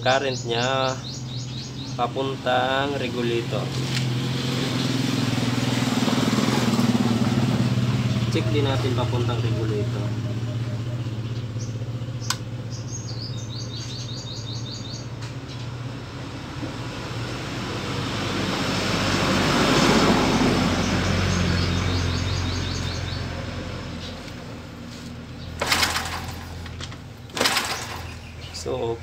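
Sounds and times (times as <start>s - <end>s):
vehicle passing: 0.0s - 29.0s
small bird trilling: 0.1s - 2.1s, 10.2s - 15.1s
sharp clicks: 12.2s - 12.5s.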